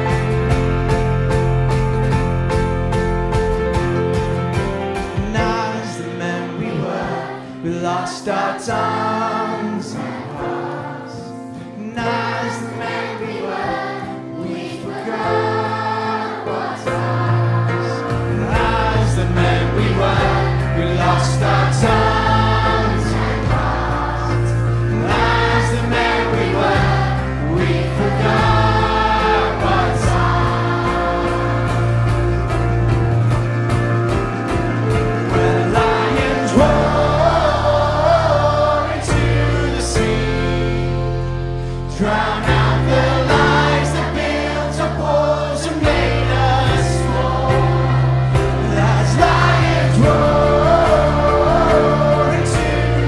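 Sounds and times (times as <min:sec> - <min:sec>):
children's choir singing: 0:00.0 - 0:01.1, 0:05.1 - 0:33.0, 0:34.1 - 0:53.0
strong bass: 0:00.0 - 0:05.5, 0:18.0 - 0:44.0
band playing pop song: 0:00.0 - 0:53.0.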